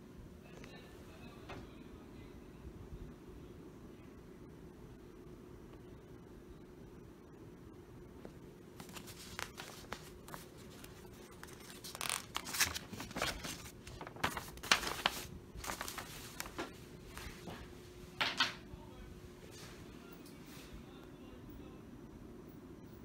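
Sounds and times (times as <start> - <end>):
paper map rustling and crinkling: 8.8 - 17.7.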